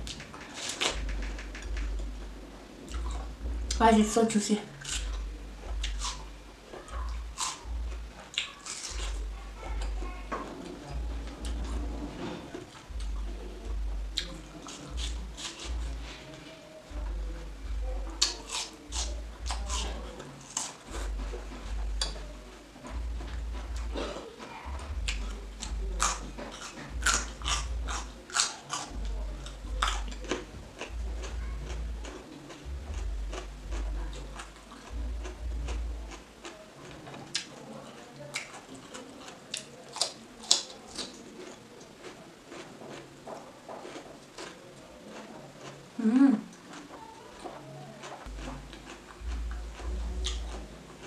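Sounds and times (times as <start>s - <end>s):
biting and chewing watermelon: 0.0s - 3.9s, 4.7s - 51.0s.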